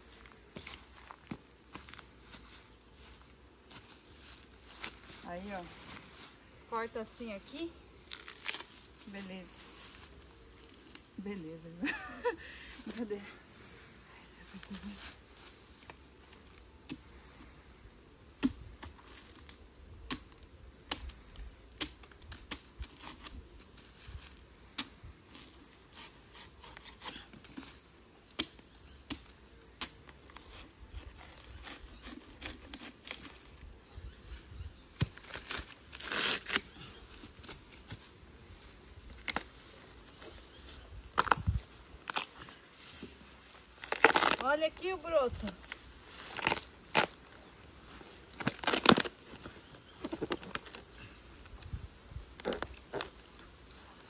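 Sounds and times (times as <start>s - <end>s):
bamboo leaves rustling: 0.0s - 17.6s, 18.8s - 54.0s
dry bamboo crackling and snapping: 8.0s - 11.2s, 18.4s - 23.4s, 24.1s - 33.6s, 34.9s - 38.1s, 39.0s - 40.3s, 41.0s - 43.0s, 43.8s - 51.6s, 52.4s - 53.5s.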